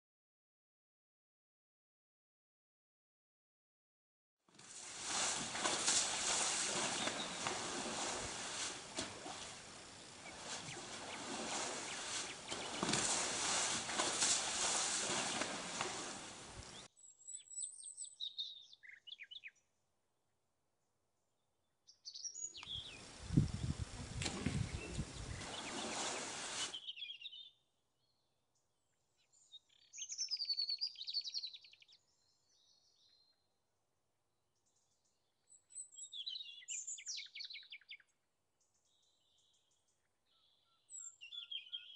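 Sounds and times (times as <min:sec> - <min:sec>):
elephant splashing in mud: 0:04.6 - 0:16.9, 0:24.1 - 0:24.7, 0:25.3 - 0:26.8
outdoor hiss: 0:04.6 - 0:16.9, 0:22.6 - 0:26.8
songbird chirping and trilling: 0:16.6 - 0:19.7, 0:21.9 - 0:23.8, 0:24.6 - 0:28.4, 0:29.1 - 0:33.4, 0:34.6 - 0:41.9.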